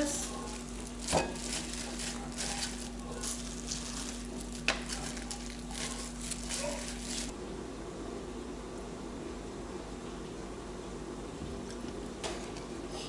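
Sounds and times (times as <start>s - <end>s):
steady low hum: 0.0s - 13.0s
gloved hand handling raw meat: 0.2s - 7.3s.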